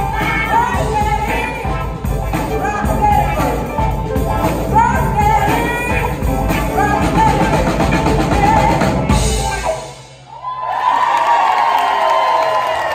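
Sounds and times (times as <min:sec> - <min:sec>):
women singing: 0:00.0 - 0:09.4
soul band playing: 0:00.0 - 0:10.4.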